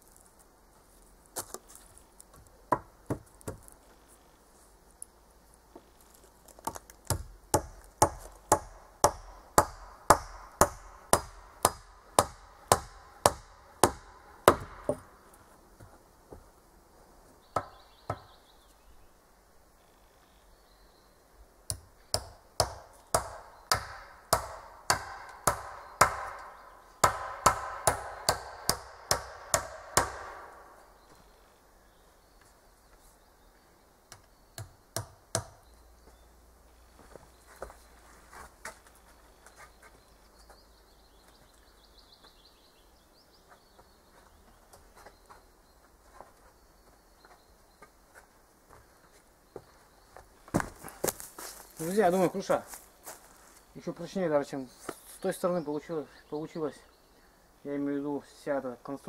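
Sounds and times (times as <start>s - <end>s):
hatchet chopping log: 7.0s - 15.1s, 17.6s - 18.3s, 21.7s - 30.5s, 34.6s - 35.6s.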